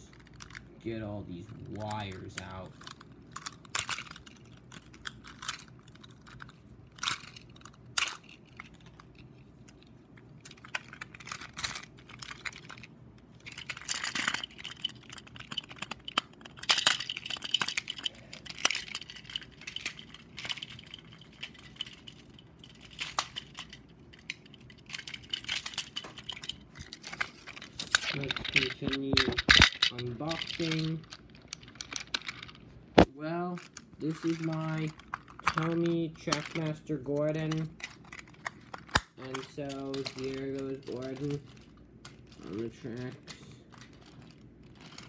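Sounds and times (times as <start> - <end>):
toy packaging clicks and crinkling: 0.0 - 45.0.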